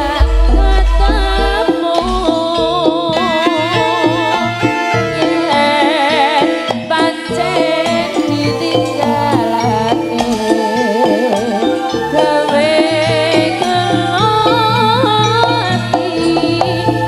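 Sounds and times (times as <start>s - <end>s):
deep low note: 0.0s - 1.8s
wavering melody line: 0.0s - 2.5s
percussion: 0.0s - 17.0s
pitched metal instruments: 0.0s - 17.0s.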